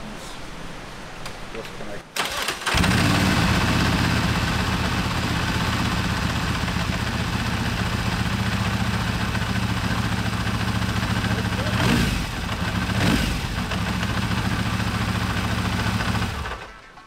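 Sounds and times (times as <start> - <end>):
motorcycle engine starting and idling: 2.1 - 17.0.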